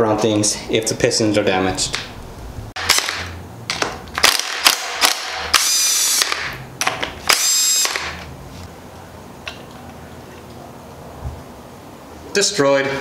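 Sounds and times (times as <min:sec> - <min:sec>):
power tool motor spinning: 0:04.2 - 0:06.6, 0:07.2 - 0:08.3.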